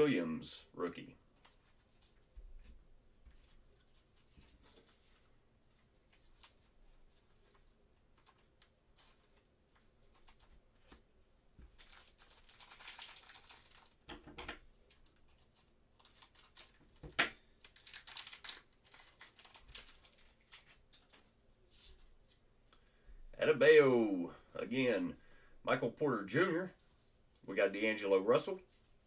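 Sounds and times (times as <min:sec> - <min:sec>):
plastic wrapper tearing and crinkling: 0:11.7 - 0:21.2.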